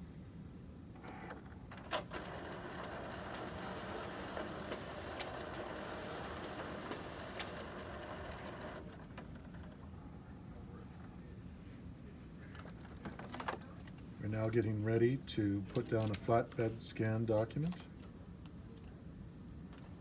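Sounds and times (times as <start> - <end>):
document feeder running: 1.0 - 9.8.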